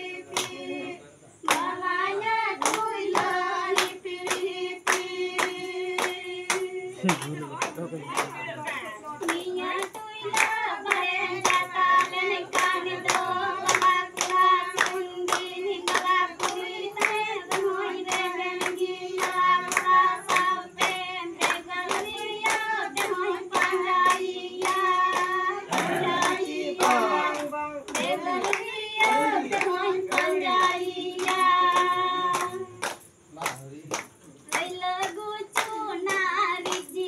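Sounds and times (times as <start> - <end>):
women singing together: 0.0 - 33.2, 34.4 - 37.0
rhythmic hand clapping: 0.0 - 37.0.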